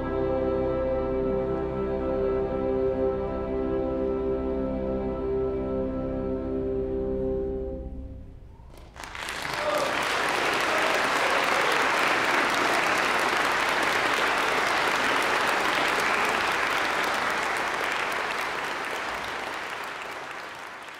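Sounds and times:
audience applauding: 8.6s - 20.9s.

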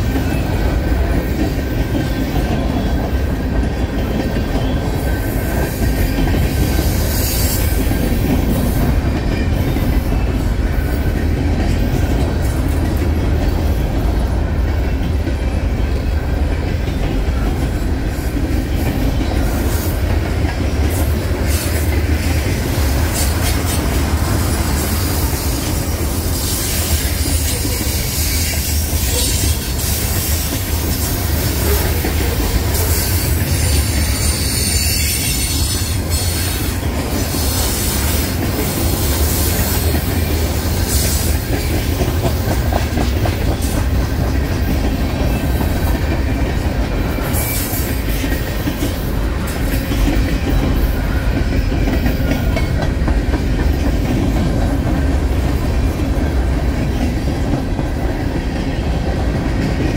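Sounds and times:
steel wheels rumbling on rail: 0.0s - 59.9s
wheels clacking over rail joints: 0.0s - 59.9s.

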